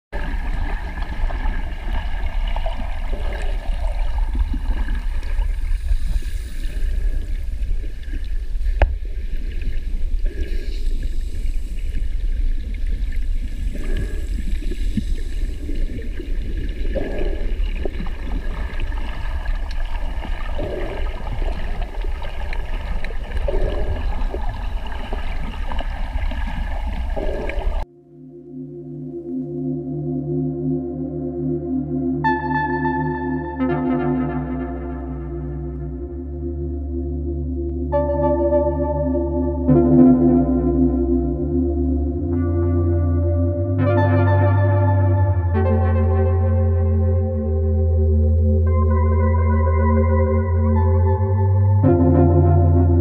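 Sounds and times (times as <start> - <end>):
water hiss: 0.2 - 27.8
underwater low rumble: 0.2 - 27.9, 33.6 - 53.0.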